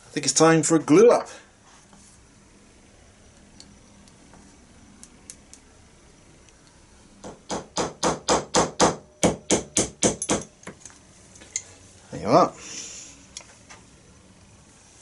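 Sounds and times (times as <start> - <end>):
small hammer tapping pins: 7.2 - 10.8.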